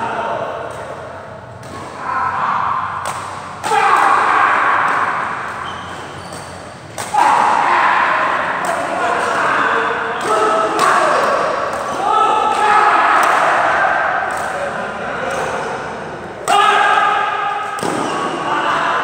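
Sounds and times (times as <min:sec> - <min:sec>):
voices echoing in a hall: 0:00.0 - 0:19.0
racket hitting shuttlecock: 0:02.8 - 0:07.6, 0:10.1 - 0:13.6, 0:16.4 - 0:18.4.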